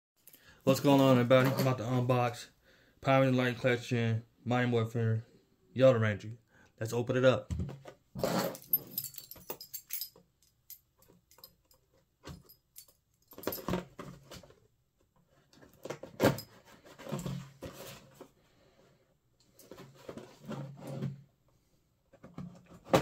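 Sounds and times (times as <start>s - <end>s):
cardboard rustling and scraping: 15.4s - 18.4s, 19.6s - 21.2s.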